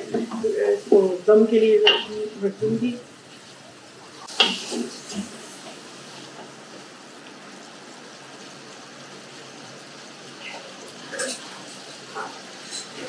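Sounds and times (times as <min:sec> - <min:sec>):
chicken sizzling in pot: 0:00.0 - 0:13.0
wooden spatula knocking metal pot: 0:01.8 - 0:02.2.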